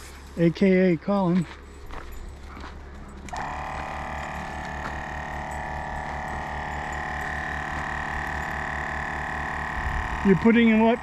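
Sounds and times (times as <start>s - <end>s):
air compressor running with even pulsing: 1.6s - 11.0s.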